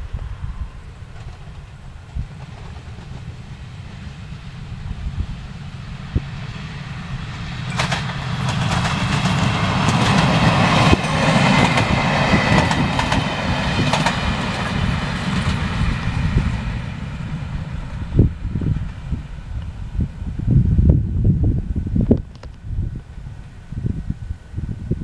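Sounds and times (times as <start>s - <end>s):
train engine and wheel noise: 0.0s - 25.0s
wheels clicking over rail joints: 7.6s - 14.7s.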